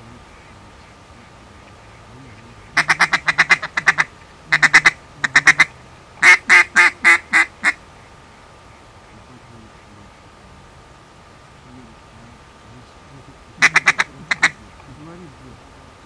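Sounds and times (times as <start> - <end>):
duck call quacks: 2.7 - 7.8, 13.6 - 14.6.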